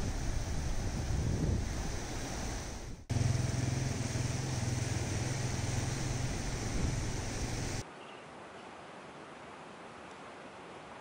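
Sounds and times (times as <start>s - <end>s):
wind: 0.0s - 11.0s
motorcycle engine on gravel: 3.1s - 7.8s
river water rushing: 3.2s - 11.0s.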